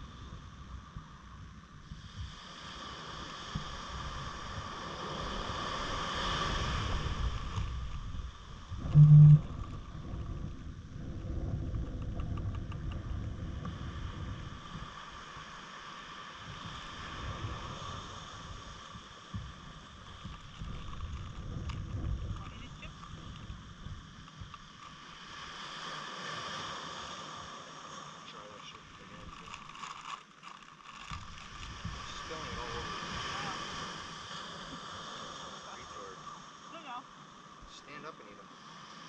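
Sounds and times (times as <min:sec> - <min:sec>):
wind rumbling on microphone: 0:00.0 - 0:27.6, 0:28.8 - 0:35.8
loud low-pitched beep: 0:08.8 - 0:09.6
steady high whine: 0:08.8 - 0:10.0.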